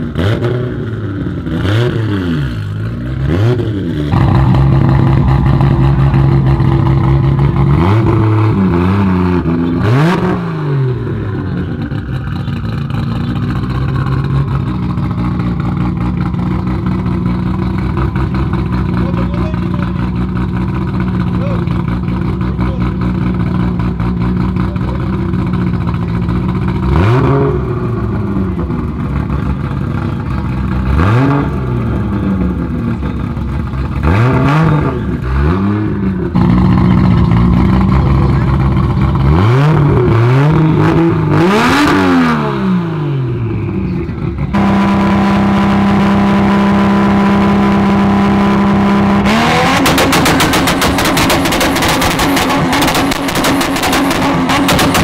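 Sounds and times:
car engine idling and revving: 0.0s - 55.0s
launch limiter popping and crackling: 49.6s - 55.0s.

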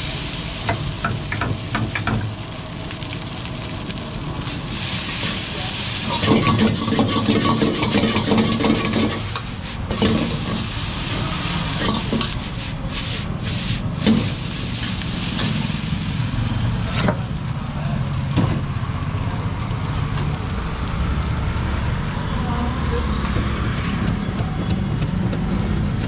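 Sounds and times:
noodles sizzling in a wok: 0.0s - 23.6s
steel ladle scraping a wok: 5.0s - 15.8s.

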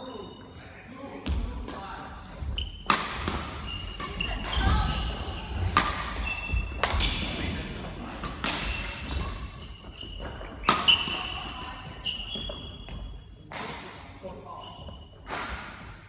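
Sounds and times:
sneakers squeaking: 2.2s - 13.5s, 14.5s - 16.0s
racket striking shuttlecock: 2.8s - 4.7s, 5.6s - 7.1s, 8.2s - 9.4s, 10.6s - 11.3s.

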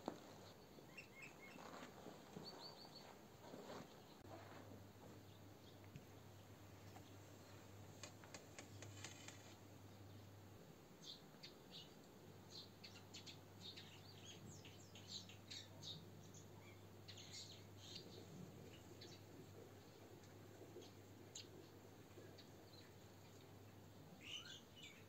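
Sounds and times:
small birds chirping: 0.4s - 4.3s, 11.0s - 25.0s.

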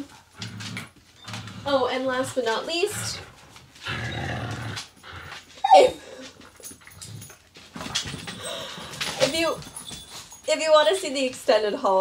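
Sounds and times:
puppies scuffling: 0.0s - 12.0s
puppy yelp: 5.6s - 6.2s.

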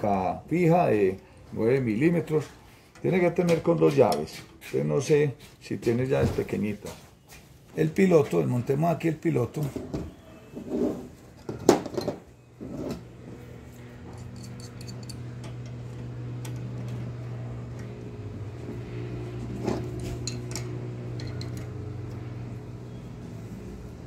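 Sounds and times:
low machine hum: 12.3s - 24.0s
metal tools clinking: 14.0s - 15.8s, 20.0s - 22.1s.

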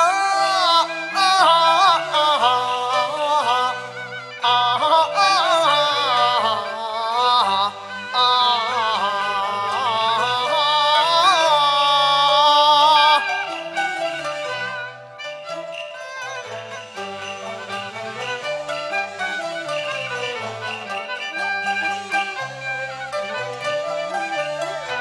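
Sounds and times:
man singing opera with vibrato: 0.0s - 3.8s, 4.4s - 13.3s
instrumental ensemble low notes: 12.9s - 25.0s.

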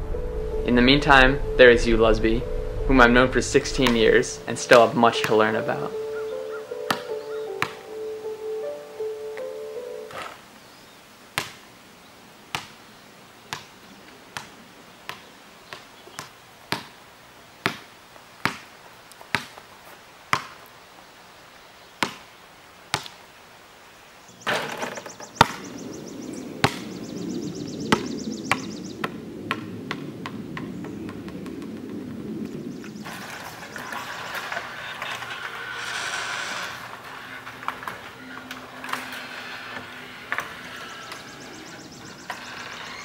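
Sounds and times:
low hum with high buzz: 0.0s - 4.7s
basketball bouncing on hard ground: 6.8s - 7.8s, 11.4s - 11.6s, 12.5s - 12.7s, 15.1s - 17.0s, 17.6s - 19.6s, 20.3s - 20.6s, 22.0s - 22.2s, 24.4s - 25.7s, 26.6s - 26.9s, 27.9s - 32.1s.

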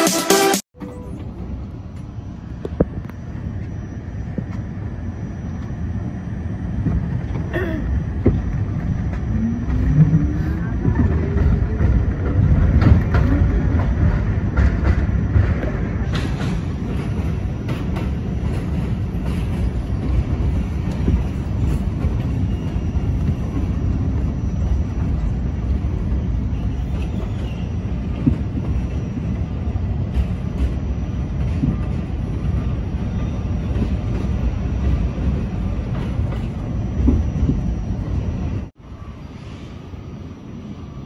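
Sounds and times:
train wheels rumbling on rails: 0.8s - 41.0s
wheels clacking over rail joints: 8.2s - 37.6s.

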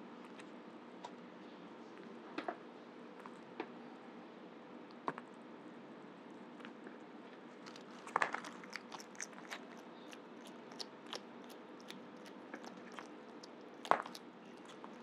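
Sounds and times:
small chewing clicks and crunches: 3.2s - 3.7s, 6.6s - 15.0s
animal crunching bite: 7.6s - 15.0s.

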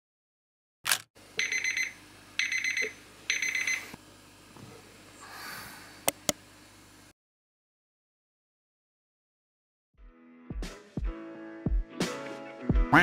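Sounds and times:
quick clicks: 0.9s - 1.1s
alarm beeping: 1.4s - 4.0s.

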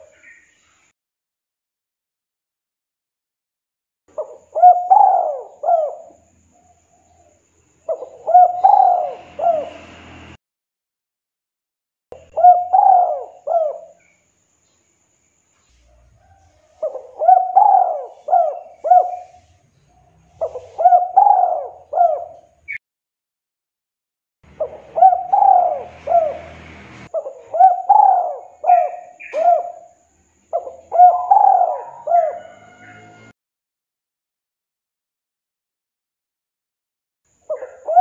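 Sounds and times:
dove cooing: 4.1s - 9.9s, 12.2s - 14.0s, 15.9s - 22.8s, 24.5s - 33.3s, 37.5s - 38.0s.

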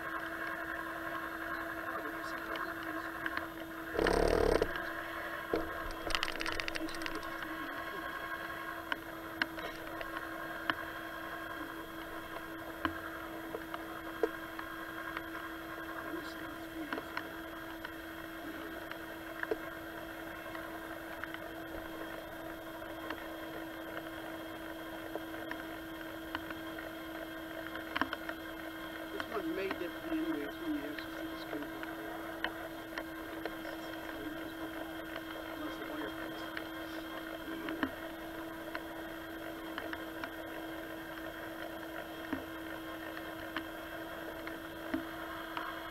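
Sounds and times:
steady electric hum: 0.0s - 45.9s
faint clicks and taps: 5.5s - 7.6s, 26.3s - 28.6s, 29.2s - 45.8s.

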